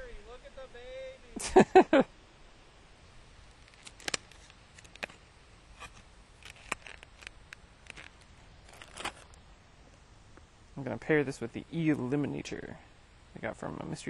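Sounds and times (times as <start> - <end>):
plastic package clicking and crinkling: 3.5 - 5.2, 5.8 - 9.4.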